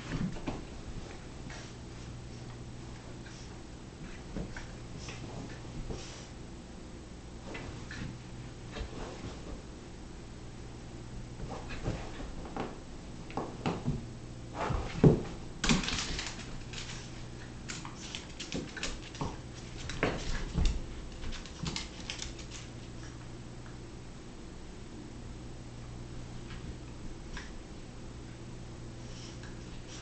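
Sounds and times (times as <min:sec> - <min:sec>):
puppies scuffling: 0:14.6 - 0:23.1.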